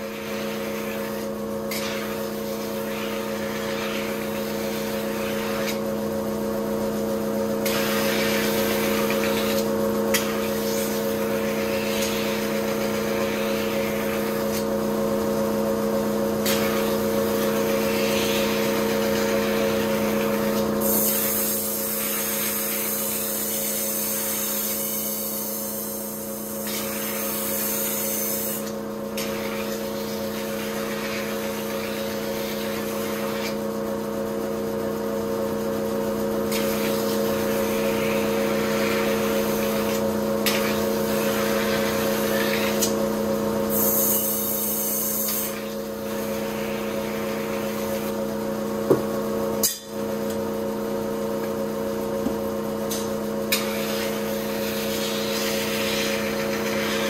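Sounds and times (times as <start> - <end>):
sharpening machine humming: 0.0 - 6.4, 7.5 - 15.5, 16.2 - 33.6, 36.4 - 57.0
blade grinding hiss: 20.8 - 28.7, 43.7 - 48.1.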